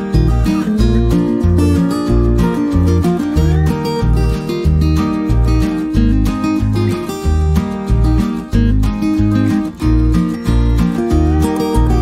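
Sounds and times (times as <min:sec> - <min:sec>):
acoustic guitar music: 0:00.0 - 0:12.0
steady bass beat: 0:00.0 - 0:12.0.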